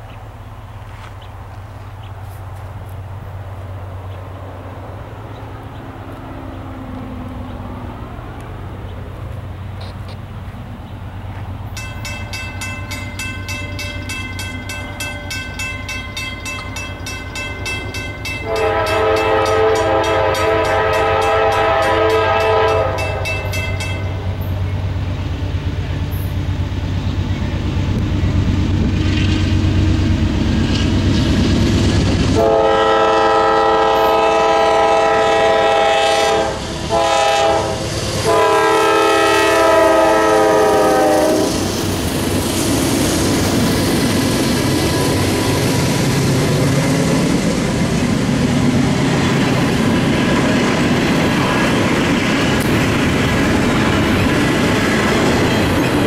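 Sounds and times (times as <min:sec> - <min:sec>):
diesel locomotive engines: 0:00.0 - 0:56.0
crossing bell ringing fast: 0:11.7 - 0:24.6
locomotive horn blasts: 0:18.3 - 0:23.6, 0:32.4 - 0:41.6.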